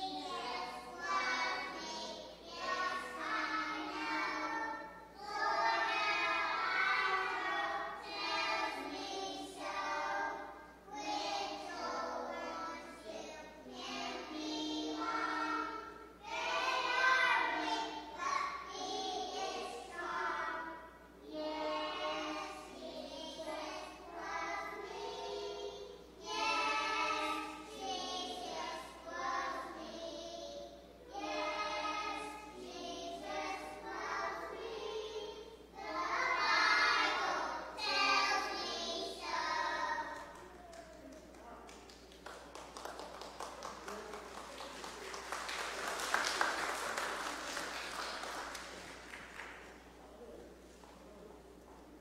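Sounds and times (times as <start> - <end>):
children singing together: 0.0 - 40.7.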